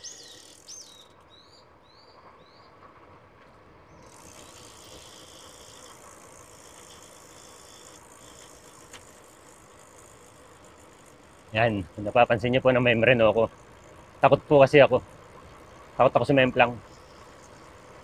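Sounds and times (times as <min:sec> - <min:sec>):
bird chirping: 0:00.0 - 0:02.7
wind and tyres hissing: 0:00.0 - 0:18.0.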